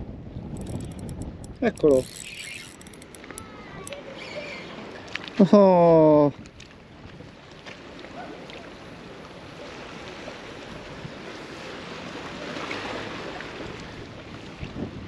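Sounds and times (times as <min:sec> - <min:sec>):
wind noise on microphone: 0:00.0 - 0:04.1, 0:14.0 - 0:15.0
small waves lapping against concrete: 0:00.6 - 0:15.0.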